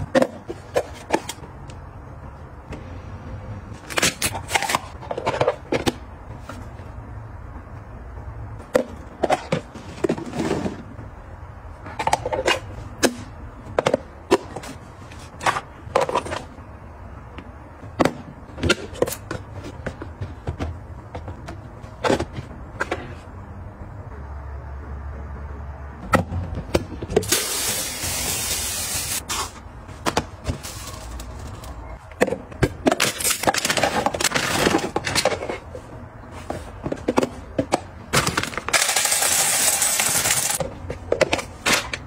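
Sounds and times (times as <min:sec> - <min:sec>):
plastic containers scraping: 0:08.8 - 0:11.0.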